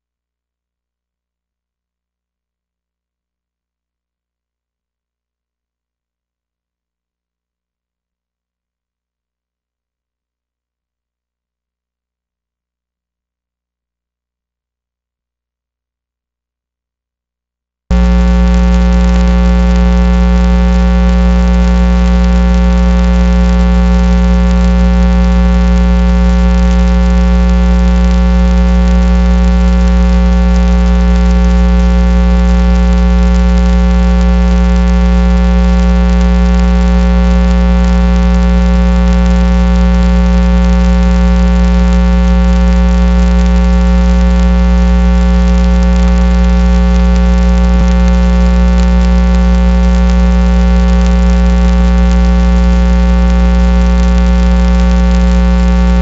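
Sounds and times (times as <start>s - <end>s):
electrical mains hum: 17.9s - 36.7s.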